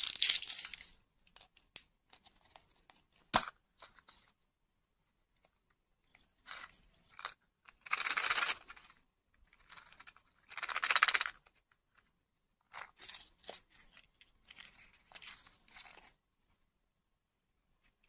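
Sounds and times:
plastic and wrapper rustling: 0.0 - 4.4, 12.7 - 16.2.

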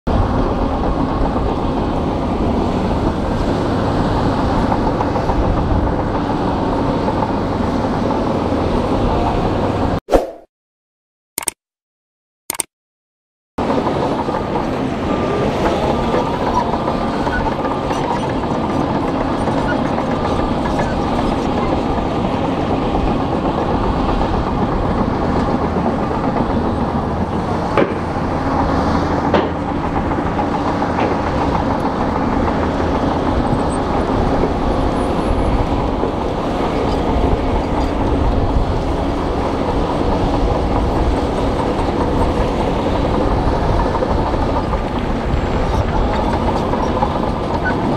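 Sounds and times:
bulldozer diesel engine: 0.1 - 10.0, 13.6 - 47.9
steel tracks clanking: 13.6 - 47.9.

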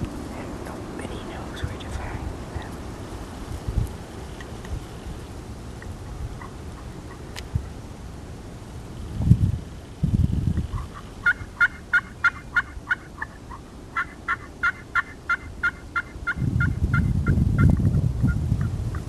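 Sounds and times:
low rumbling noise: 0.0 - 12.2
turkey yelping: 10.8 - 16.4.

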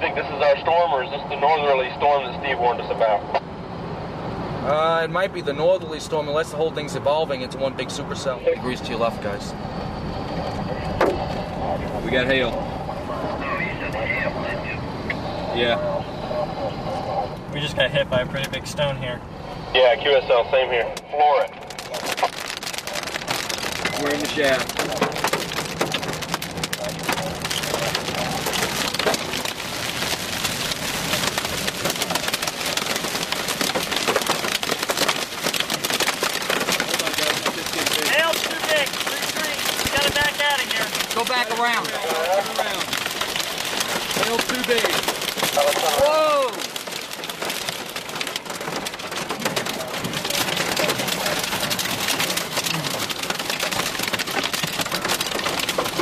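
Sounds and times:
hail clattering on vehicle roof: 21.4 - 56.0.

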